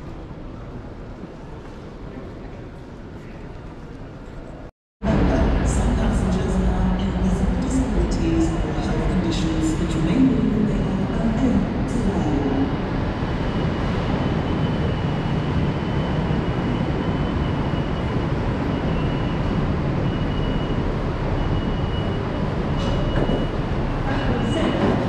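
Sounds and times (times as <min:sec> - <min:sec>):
standing train humming: 0:05.0 - 0:25.0.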